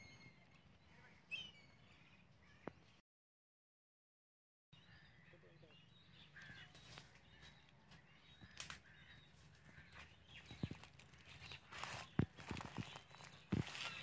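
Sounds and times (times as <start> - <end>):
footsteps through undergrowth: 6.4 - 14.0
leaves rustling: 9.9 - 14.0.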